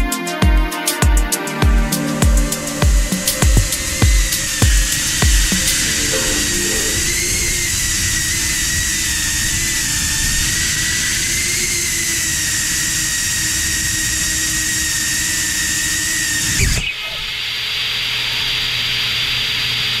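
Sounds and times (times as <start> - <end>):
steady hiss: 1.3 - 11.3
drone motors whining: 2.5 - 17.2.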